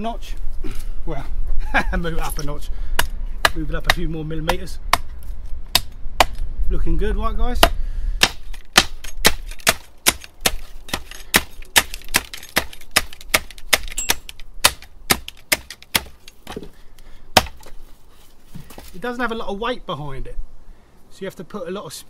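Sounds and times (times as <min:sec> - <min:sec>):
machete chopping branch on block: 0:03.0 - 0:06.4, 0:07.6 - 0:16.7, 0:17.3 - 0:17.8.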